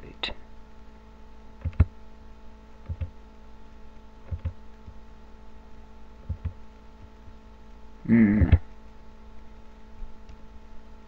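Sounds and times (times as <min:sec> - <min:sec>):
steady electrical hum: 0:00.0 - 0:11.0
computer mouse clicks: 0:01.6 - 0:01.9, 0:02.8 - 0:03.2, 0:04.2 - 0:05.0.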